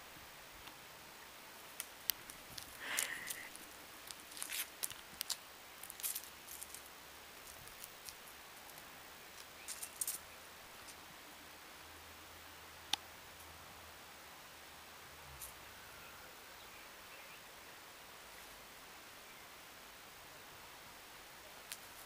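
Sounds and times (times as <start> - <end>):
puppy claws clicking on concrete: 1.8 - 6.8, 9.4 - 10.2.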